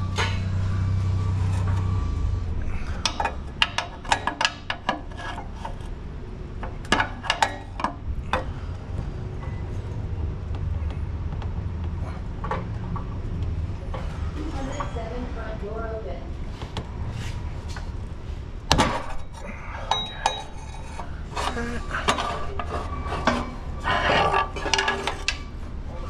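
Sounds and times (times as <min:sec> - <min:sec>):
steady low hum: 0:00.0 - 0:26.0
pry bar clinking on metal: 0:19.1 - 0:20.7.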